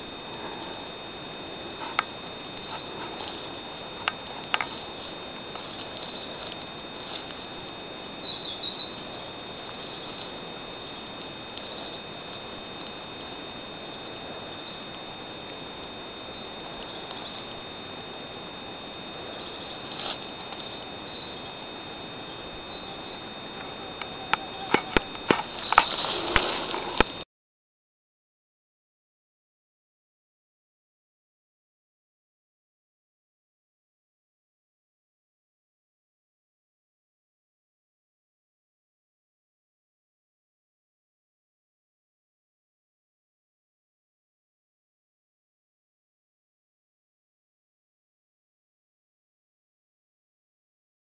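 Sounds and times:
steady hiss: 0.0s - 27.2s
faint high whine: 0.0s - 27.3s
small birds chirping: 0.4s - 0.8s, 1.4s - 14.7s, 16.0s - 18.1s, 19.1s - 27.2s.

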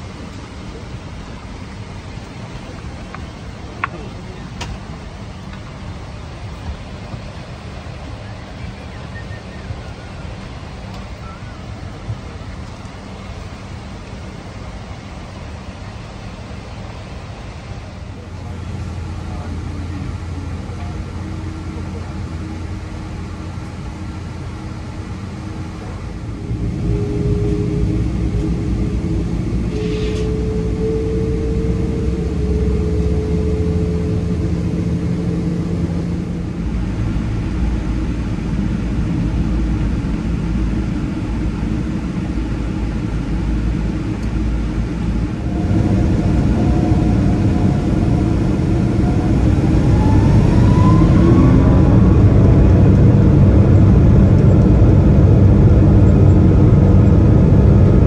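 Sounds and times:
jet engines rumbling and whining: 0.0s - 58.0s
jet engines spooling up: 0.0s - 58.0s.

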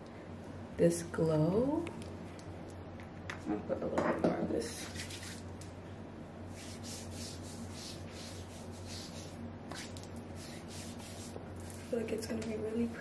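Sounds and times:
low steady hum: 0.0s - 13.0s
hands rubbing oil on skin: 6.5s - 11.9s.

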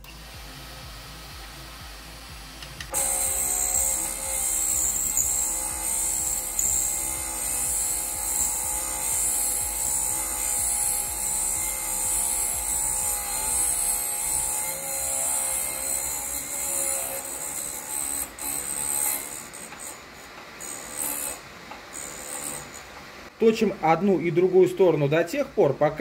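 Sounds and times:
motor whine: 0.0s - 23.0s
high grinding hiss: 0.0s - 26.0s.

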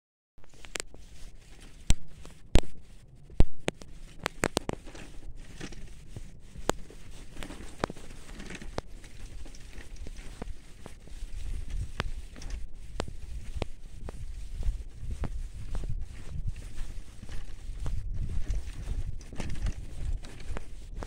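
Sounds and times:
bicycle rattling over bumps: 0.5s - 21.0s
bicycle tyres crunching leaves: 4.2s - 13.4s.

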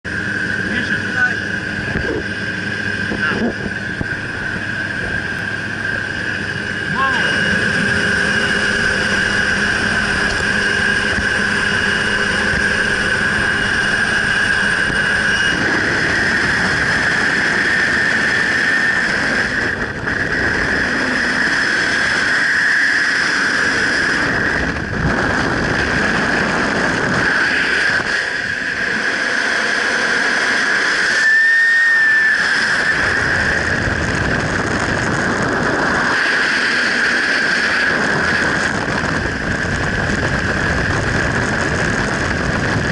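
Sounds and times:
airplane engine drone: 0.0s - 42.9s
wind rushing: 1.5s - 42.9s
steady high whistle: 6.0s - 12.3s, 30.6s - 33.8s.

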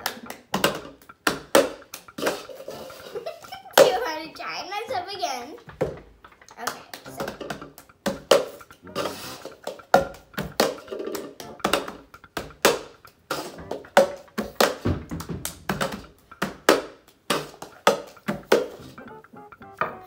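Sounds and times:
hands clapping: 0.0s - 2.5s, 6.5s - 20.0s.

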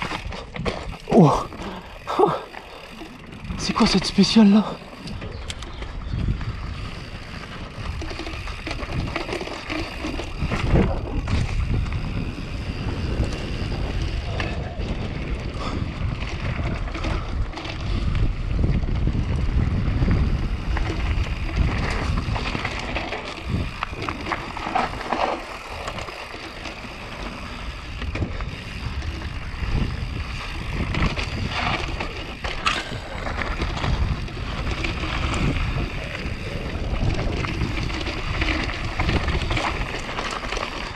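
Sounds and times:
bike rattling and knocking: 0.0s - 40.9s
tyres rolling over gravel: 0.0s - 40.9s
wind buffeting microphone: 0.0s - 40.9s.

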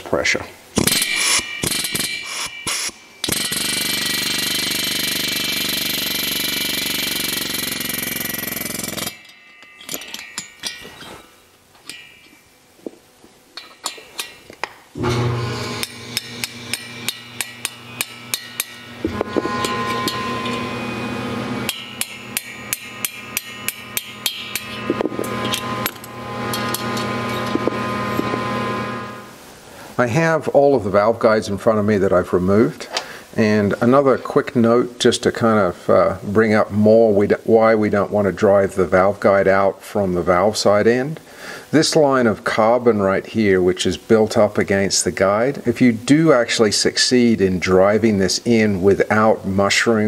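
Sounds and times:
steady hum: 0.1s - 33.8s
pneumatic air hammer: 0.8s - 11.2s, 15.0s - 28.8s
metal parts clinking: 8.4s - 12.5s, 21.7s - 28.4s.

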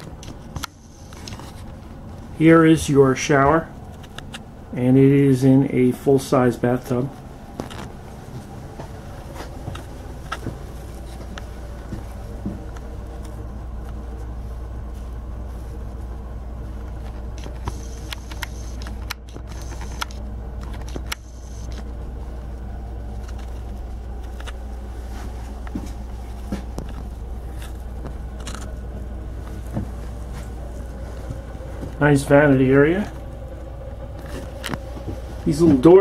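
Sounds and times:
low machinery hum: 0.0s - 36.0s.

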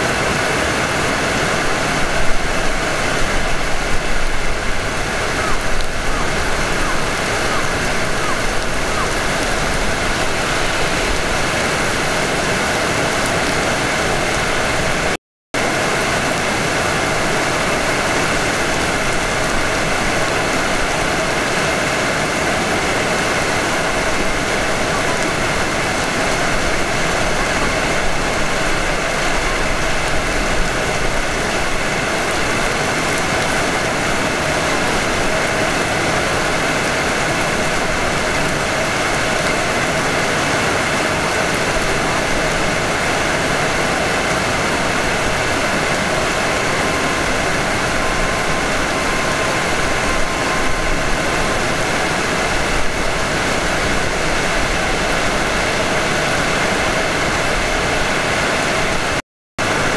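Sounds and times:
electric train running: 17.1s - 54.6s.

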